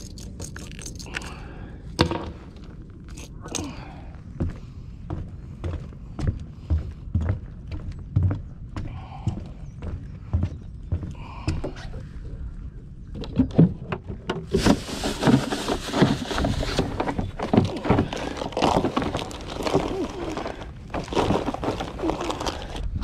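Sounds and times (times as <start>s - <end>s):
footsteps on plastic dock: 3.8s - 12.2s, 13.1s - 23.0s
rustling: 14.5s - 22.9s.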